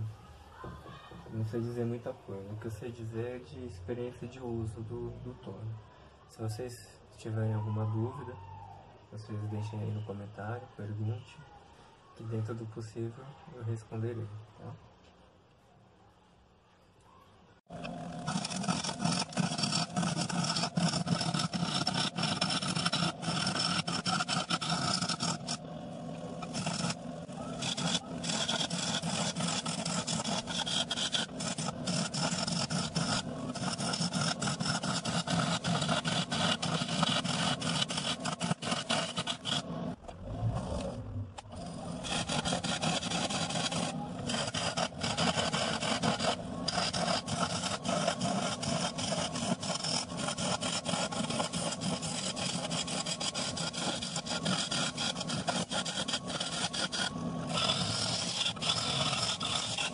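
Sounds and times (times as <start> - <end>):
gouge scraping spinning wood: 17.7 - 59.9
lathe motor hum: 17.7 - 59.9.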